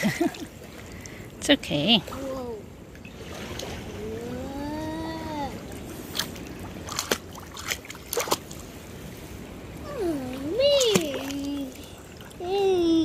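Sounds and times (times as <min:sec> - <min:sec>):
water lapping and splashing: 0:00.0 - 0:13.0
child vocalizing: 0:04.0 - 0:05.6, 0:09.8 - 0:13.0
hands slapping water: 0:06.1 - 0:08.6, 0:10.7 - 0:11.9.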